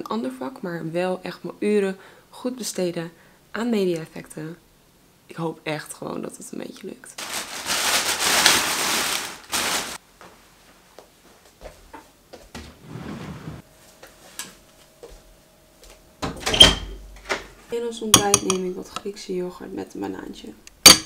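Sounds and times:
plastic bag rustling: 7.2s - 10.0s.

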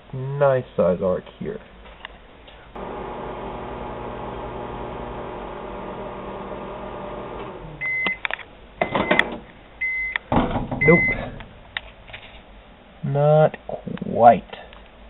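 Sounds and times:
microwave oven humming: 2.8s - 10.2s
microwave beeping: 2.8s - 11.3s.

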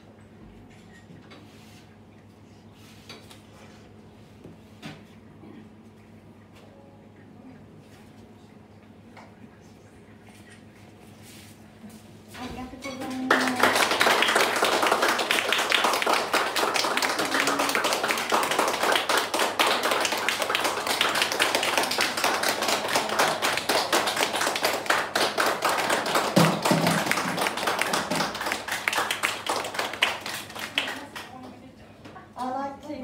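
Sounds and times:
audience applauding: 13.2s - 31.6s.

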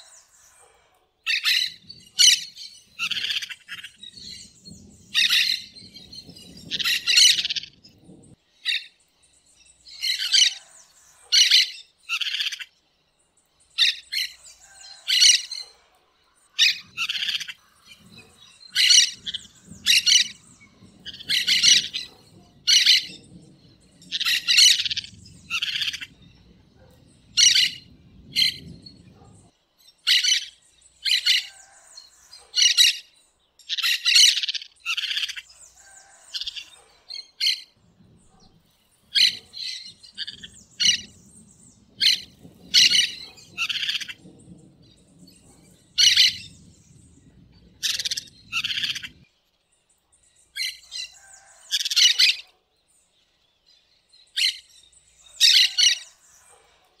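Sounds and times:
parakeets chirping: 16.6s - 29.3s, 39.1s - 44.6s, 45.5s - 46.6s, 47.8s - 49.2s.

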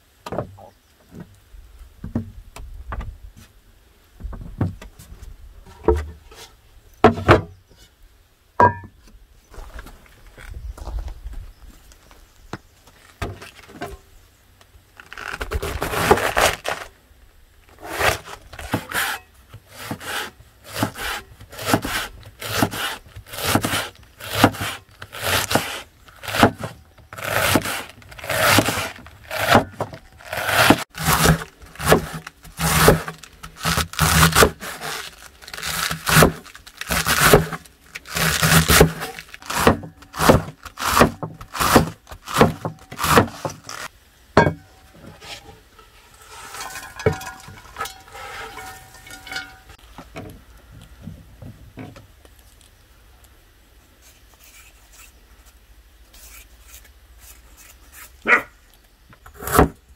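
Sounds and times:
scraping and handling sounds: 4.9s - 8.0s, 12.8s - 14.1s, 17.7s - 52.8s
cleaver chopping cabbage on board: 19.8s - 35.0s, 35.7s - 43.7s.

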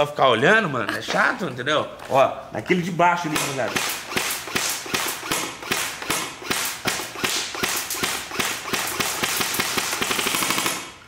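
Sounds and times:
airsoft rifle rapid fire: 3.3s - 11.0s.

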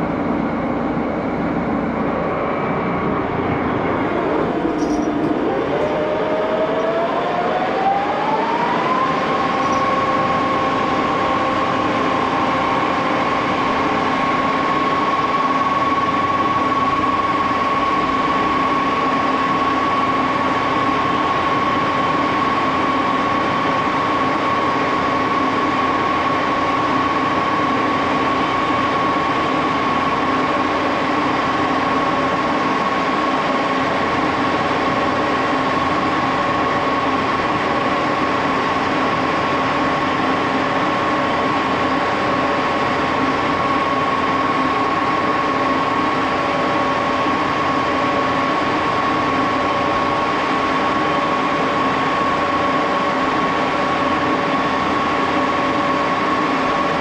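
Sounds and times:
lathe running with pitched hum: 0.0s - 57.0s.

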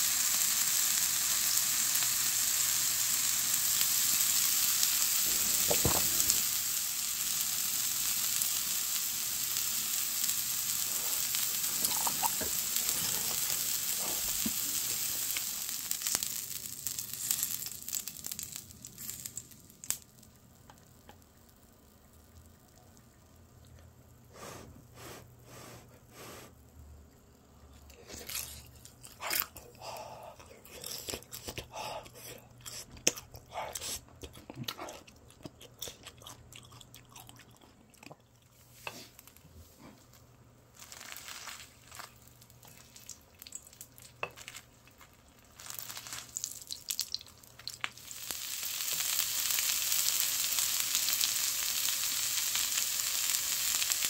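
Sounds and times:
meat sizzling on a grill plate: 0.0s - 20.2s, 40.8s - 42.7s, 45.4s - 54.0s
chewing and crunching food: 10.8s - 16.3s, 27.6s - 40.2s, 40.8s - 54.0s.

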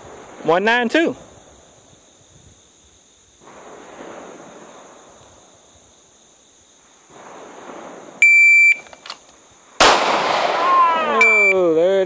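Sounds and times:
wind buffeting the microphone: 0.0s - 5.9s
shot timer beep: 11.2s - 11.6s.

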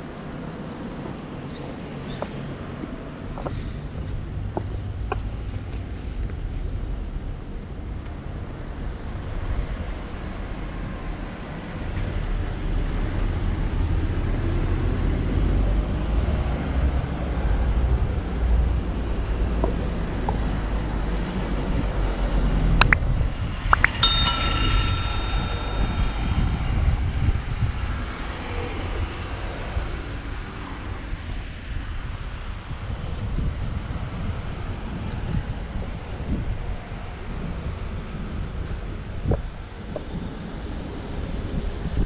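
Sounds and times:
bell-like metallic ring: 24.0s - 27.2s.

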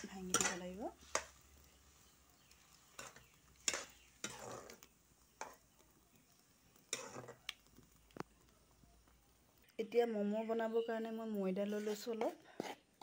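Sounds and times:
spoon scraping and knocking a wok: 0.0s - 5.8s, 6.8s - 7.5s.

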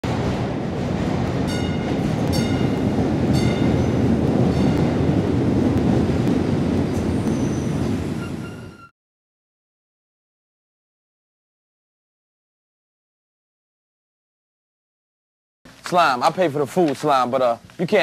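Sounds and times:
train rumbling on rails: 0.0s - 8.9s
high-pitched wheel squeal: 7.0s - 9.0s.

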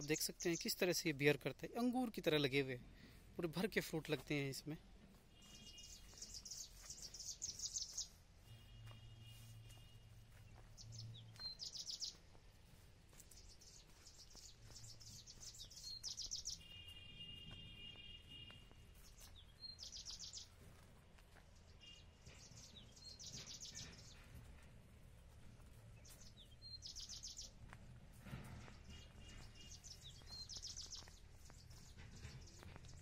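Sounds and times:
thin steady bird notes: 5.2s - 17.1s, 18.6s - 20.6s, 21.6s - 27.7s, 28.7s - 33.0s.

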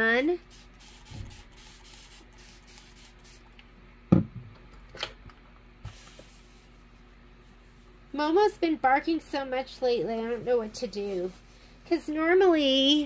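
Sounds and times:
spray bottle spritzing: 0.4s - 3.5s.

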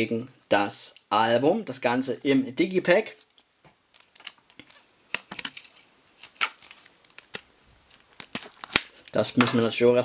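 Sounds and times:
handling cd packaging clicks: 3.3s - 9.6s.

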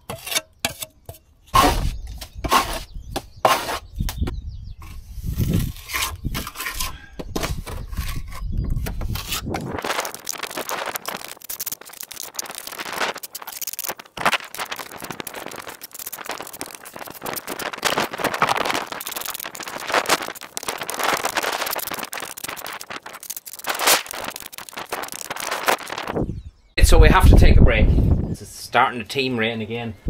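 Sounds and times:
trowel scraping wet cement: 0.0s - 3.9s, 4.8s - 26.0s.

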